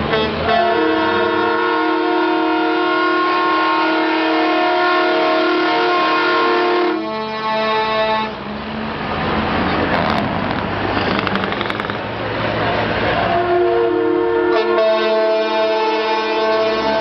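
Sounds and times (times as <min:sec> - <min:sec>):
truck air horn chord: 0:00.0 - 0:08.4, 0:13.3 - 0:17.0.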